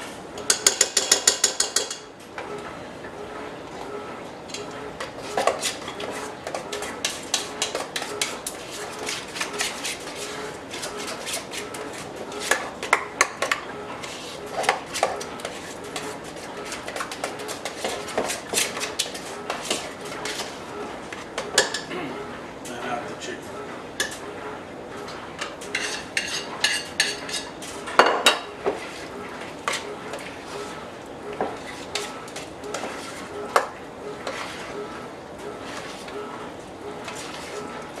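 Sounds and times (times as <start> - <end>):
spoon clinking on metal bowl: 0.4 - 2.1
spoon stirring thick marinade: 4.5 - 21.9, 28.5 - 38.0.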